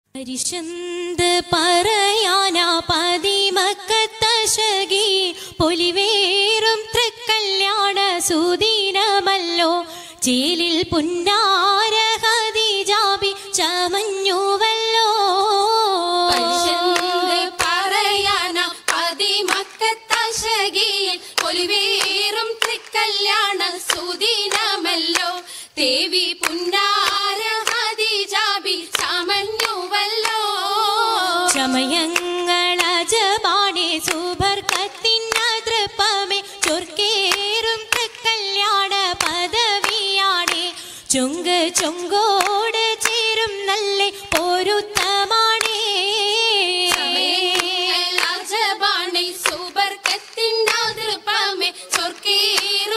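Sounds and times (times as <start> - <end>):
high voice singing melismatic melody: 16.2 - 17.6, 30.8 - 32.6, 46.7 - 48.2
hand claps in rhythm: 16.3 - 52.9.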